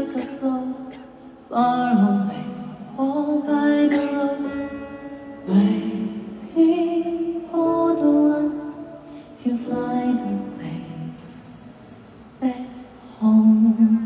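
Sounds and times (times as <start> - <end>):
man singing ballad over sound system: 0.0 - 11.4.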